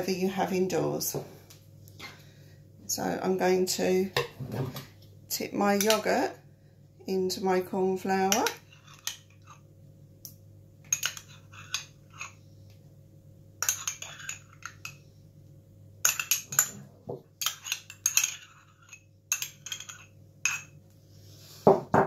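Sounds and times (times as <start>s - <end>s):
spoon scraping and clinking in jar: 8.4s - 9.6s, 10.9s - 12.4s, 13.6s - 15.0s, 17.4s - 20.8s.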